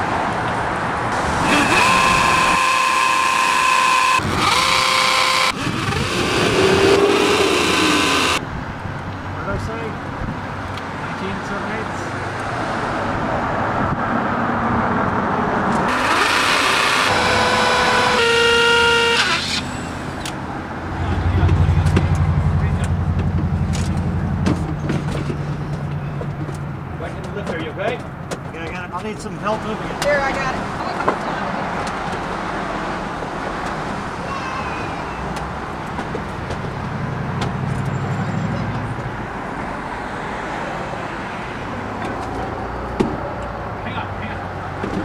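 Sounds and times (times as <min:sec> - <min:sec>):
street traffic: 0:00.0 - 0:45.0
car horn honk: 0:01.2 - 0:04.8, 0:17.0 - 0:19.9
vehicle passing close: 0:03.5 - 0:08.5, 0:19.3 - 0:27.0.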